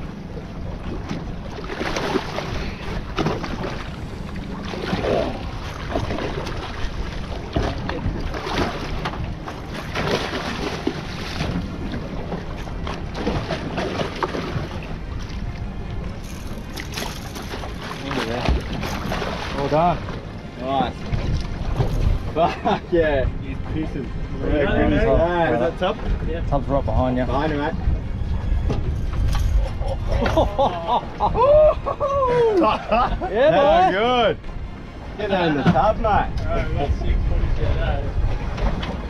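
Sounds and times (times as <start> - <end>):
choppy water against boat hull: 0.0 - 39.0
wind on microphone: 23.3 - 32.6.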